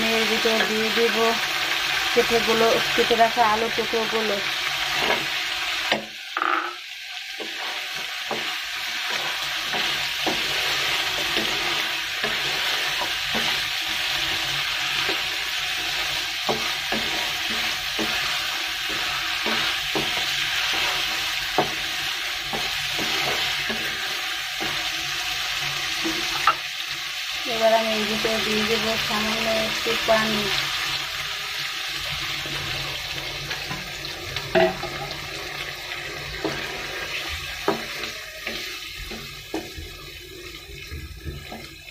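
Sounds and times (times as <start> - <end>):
food sizzling in hot oil: 0.0 - 41.9
spatula scraping a pan: 7.4 - 26.6, 33.2 - 41.9.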